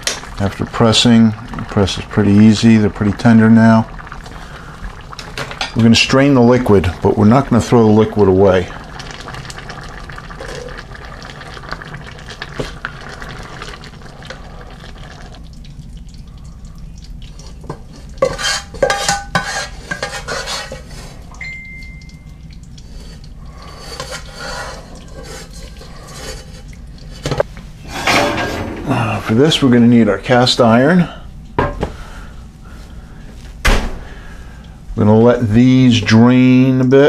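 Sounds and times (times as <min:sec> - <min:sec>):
ladle scooping beans with sloshing: 0:17.1 - 0:21.4
clinks and scrapes on metal: 0:18.2 - 0:20.9, 0:27.2 - 0:29.2.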